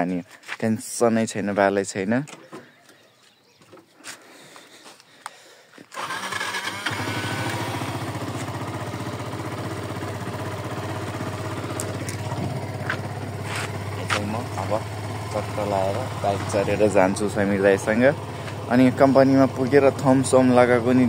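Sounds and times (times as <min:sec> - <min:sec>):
motorcycle engine starting and idling: 0:05.9 - 0:21.0.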